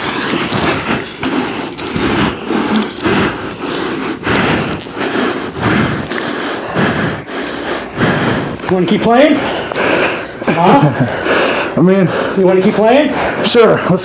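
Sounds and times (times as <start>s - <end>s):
clothing and gear rustling: 0.0s - 5.0s.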